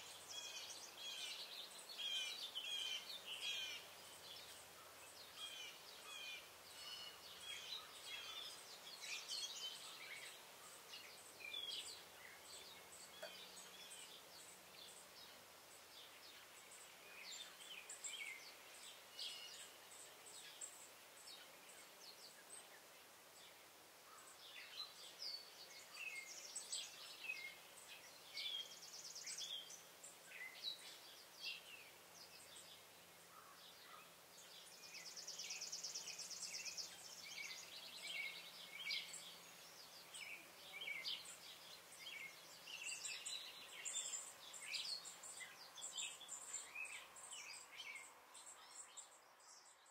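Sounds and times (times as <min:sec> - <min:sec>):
songbirds chirping: 0:00.0 - 0:49.9.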